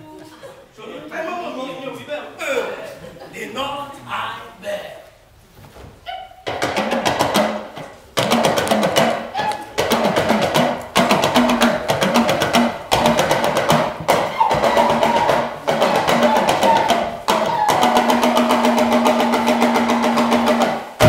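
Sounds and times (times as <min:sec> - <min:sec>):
fast drumming music: 0:06.4 - 0:21.0.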